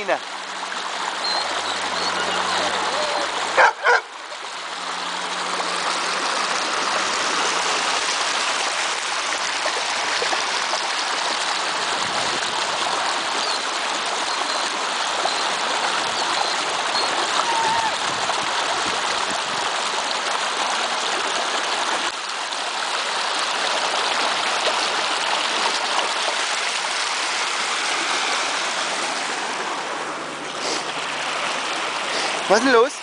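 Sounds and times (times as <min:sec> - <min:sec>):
stream rushing over rocks: 0:00.0 - 0:33.0
dog barking: 0:03.6 - 0:04.1.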